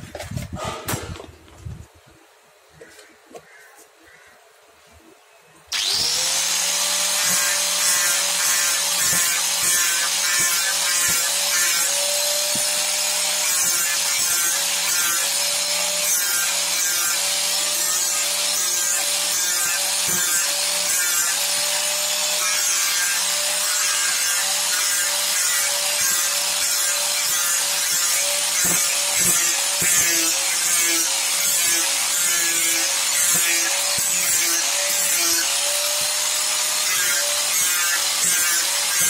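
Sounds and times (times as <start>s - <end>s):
cutter scraping wood: 5.7s - 39.0s
power tool motor whine: 5.7s - 39.0s.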